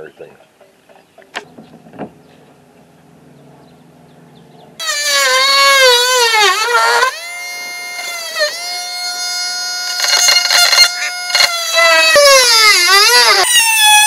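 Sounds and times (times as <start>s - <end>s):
multi-tool cutting plywood: 4.8s - 14.0s.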